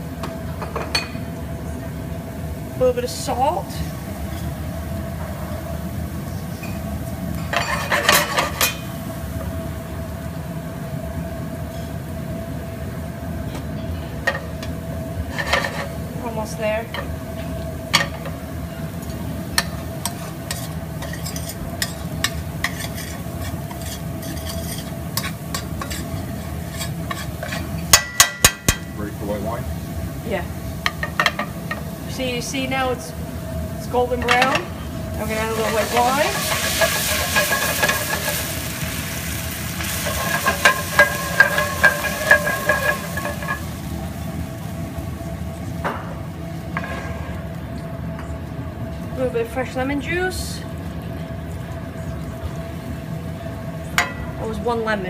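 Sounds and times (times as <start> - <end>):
garlic sizzling in oil: 1.1 - 55.0
metal spoon scraping a pan: 7.6 - 8.8, 15.3 - 16.0, 19.6 - 28.7, 35.5 - 38.6, 39.9 - 43.7.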